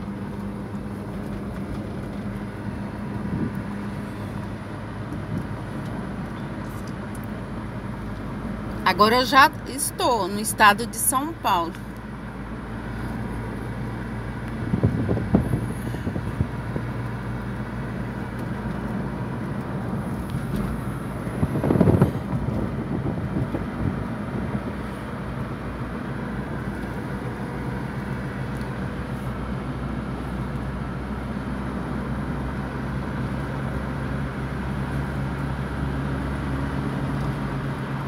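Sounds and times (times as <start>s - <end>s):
car road and engine noise: 0.0s - 38.0s.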